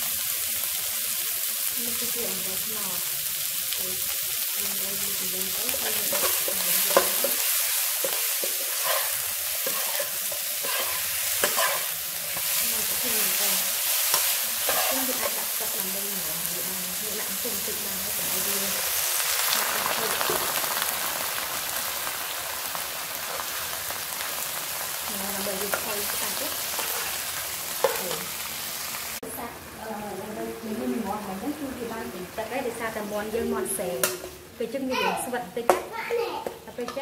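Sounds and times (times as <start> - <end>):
chicken sizzling in a wok: 0.0 - 37.0
metal spatula scraping a pan: 5.7 - 15.8, 25.7 - 28.2.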